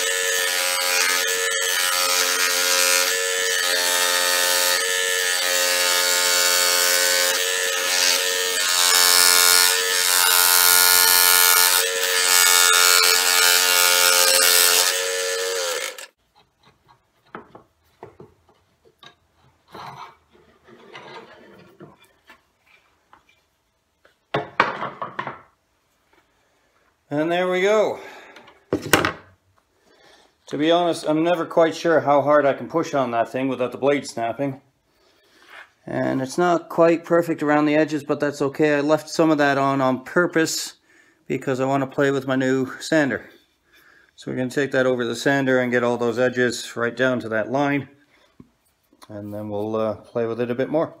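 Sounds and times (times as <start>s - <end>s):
scroll saw cutting wood: 0.0s - 16.2s
faint knocks and taps: 16.3s - 19.6s.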